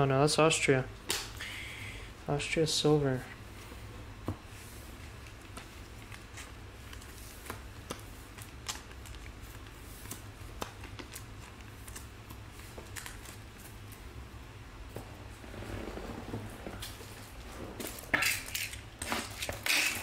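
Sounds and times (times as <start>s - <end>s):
steady low hum: 0.0s - 20.0s
trading cards being flipped: 5.2s - 14.0s.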